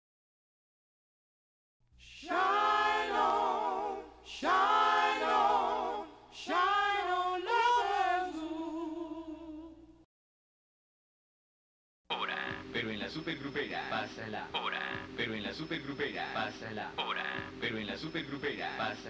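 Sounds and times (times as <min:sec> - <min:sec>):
person singing with vibrato: 0:02.1 - 0:10.0.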